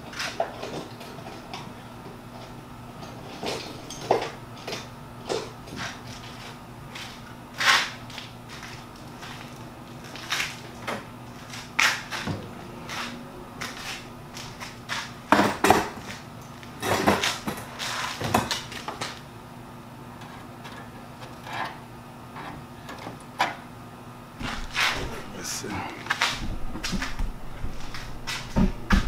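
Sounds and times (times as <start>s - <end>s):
faint steady hum: 0.0s - 29.0s
tools and metal parts rattling: 3.0s - 4.8s.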